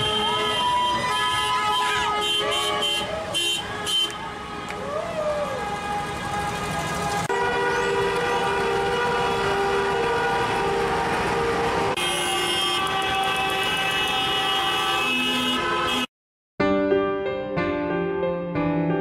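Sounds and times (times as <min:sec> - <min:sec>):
car horns honking together: 0:12.0 - 0:16.1.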